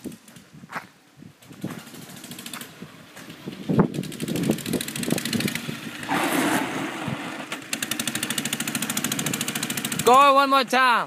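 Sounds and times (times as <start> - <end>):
scooter engine running: 1.4 - 10.2.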